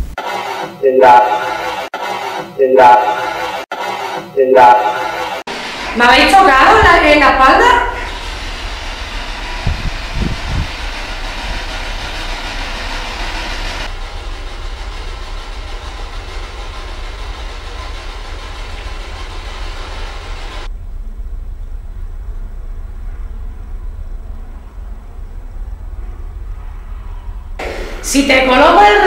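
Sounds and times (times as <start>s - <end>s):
low thumps: 8.4s - 13.0s
low rumble with hiss: 13.8s - 28.8s.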